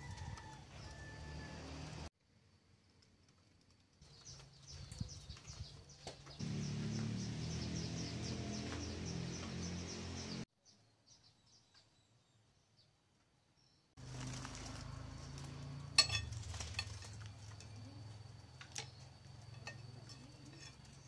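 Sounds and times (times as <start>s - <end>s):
low outdoor hum: 14.0s - 21.0s
metal spoon clinking glass bowl: 15.9s - 17.1s, 19.5s - 21.0s.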